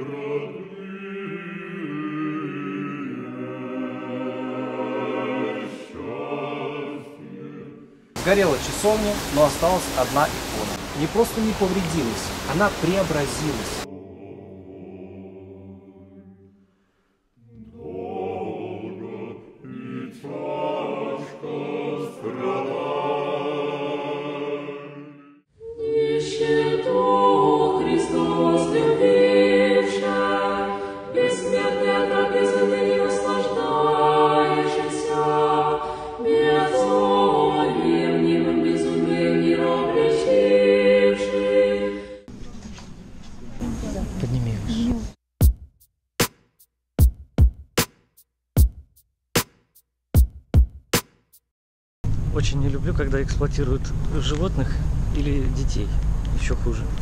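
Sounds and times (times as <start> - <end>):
choir chanting a cappella: 0.0 - 16.6, 17.4 - 42.4.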